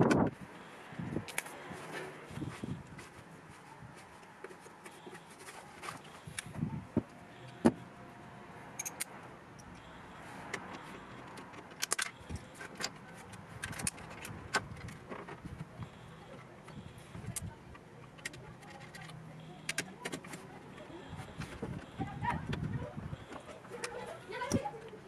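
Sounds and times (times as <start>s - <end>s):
tools and metal parts clinking: 8.8s - 9.8s.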